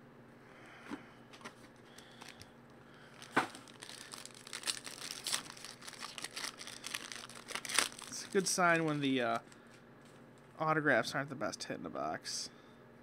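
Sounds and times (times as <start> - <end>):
shrink wrap crinkling and tearing: 3.1 - 9.6.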